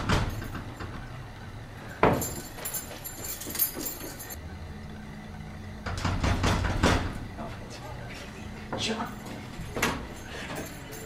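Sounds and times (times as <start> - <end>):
low steady hum: 0.0 - 11.0
sharp knocks: 5.8 - 7.2.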